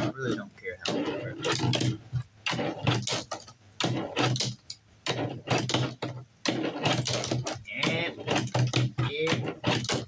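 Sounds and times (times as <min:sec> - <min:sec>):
fingerboard wheels rumbling: 0:00.0 - 0:10.0
fingerboard deck clacking: 0:00.9 - 0:10.0.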